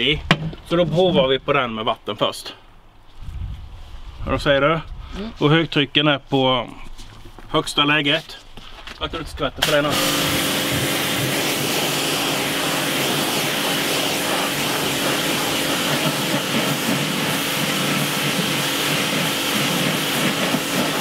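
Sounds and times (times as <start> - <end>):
pressure washer spraying water: 9.6 - 21.0.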